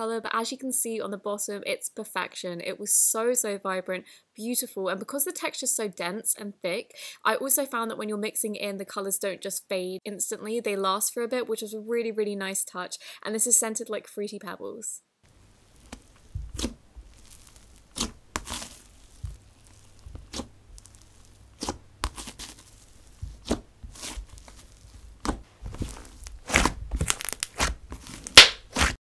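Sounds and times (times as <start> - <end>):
hands squeezing sticky slime: 15.3 - 29.0.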